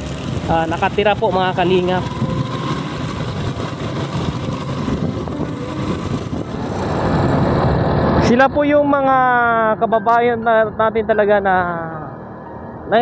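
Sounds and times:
wind rushing over microphone: 0:00.0 - 0:09.6
motorcycle running: 0:00.0 - 0:10.8.

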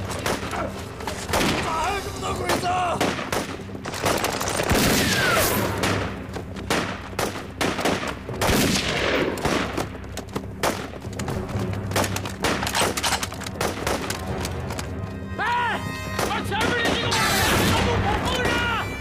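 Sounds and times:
rifle shots: 0:03.0 - 0:09.9, 0:11.9 - 0:14.2.

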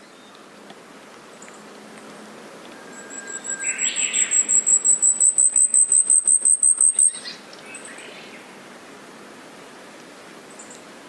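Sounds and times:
bird singing high thin notes: 0:02.8 - 0:08.0.

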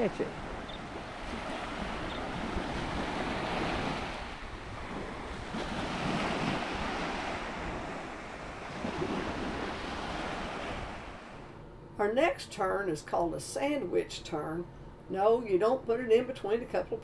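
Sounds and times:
small waves washing onto beach: 0:00.0 - 0:11.5
wind rumbling on microphone: 0:00.0 - 0:11.5.

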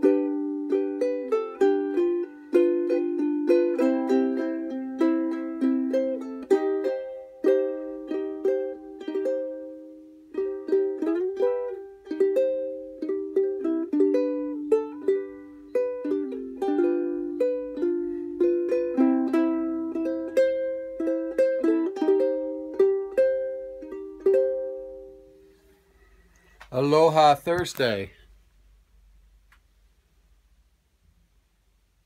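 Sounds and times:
ukulele playing: 0:00.0 - 0:25.6.

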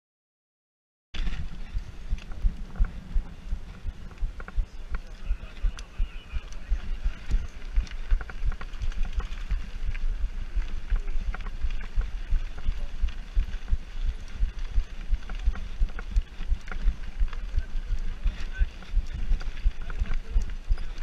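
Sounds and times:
bike rattling: 0:01.2 - 0:21.0
wind buffeting microphone: 0:01.2 - 0:21.0.

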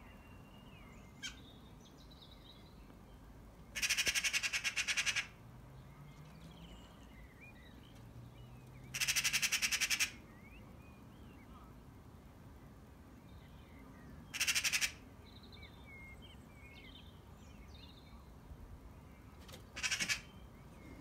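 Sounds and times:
magpie chattering: 0:03.8 - 0:05.3, 0:08.9 - 0:10.2, 0:14.3 - 0:15.0, 0:19.8 - 0:20.3.

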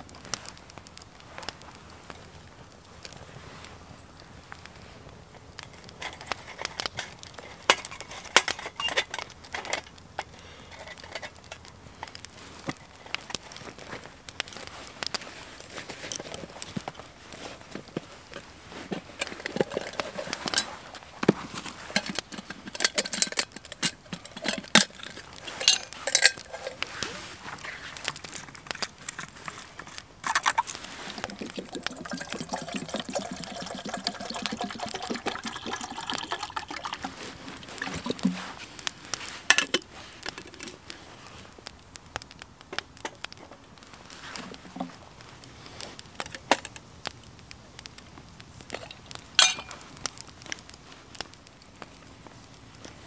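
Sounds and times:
wood fire snapping: 0:00.0 - 0:53.0
water pouring into metal kettle: 0:30.3 - 0:38.2.

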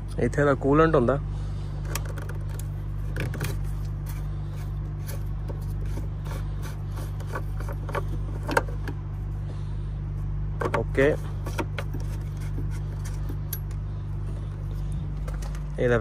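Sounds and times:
steady low hum: 0:00.0 - 0:16.0
clicks and rubbing from handling: 0:01.8 - 0:09.0, 0:10.6 - 0:15.8.

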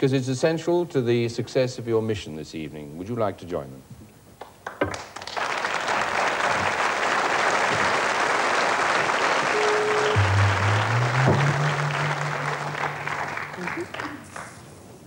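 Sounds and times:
audience applauding: 0:04.6 - 0:14.8
low electronic tone: 0:09.5 - 0:14.0.

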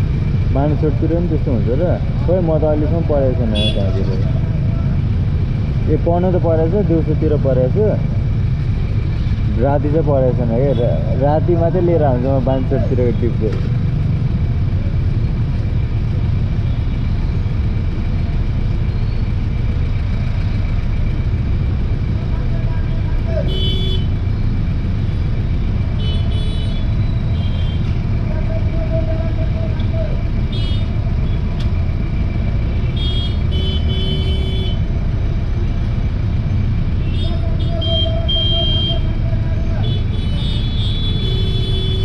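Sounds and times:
motorcycle engines idling: 0:00.0 - 0:42.0
high-pitched vehicle horns beeping: 0:03.5 - 0:04.1, 0:23.4 - 0:24.2, 0:26.0 - 0:28.0, 0:30.5 - 0:31.4, 0:32.8 - 0:34.9, 0:37.0 - 0:42.0.

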